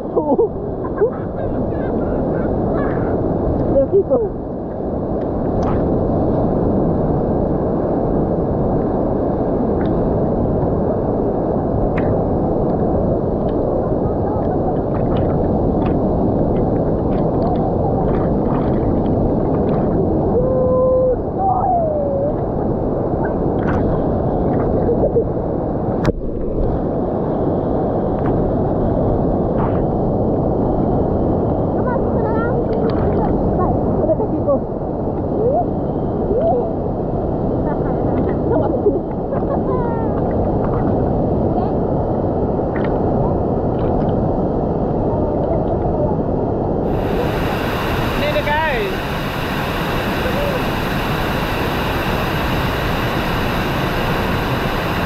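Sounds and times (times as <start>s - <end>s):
waterfall rushing: 46.8s - 55.0s.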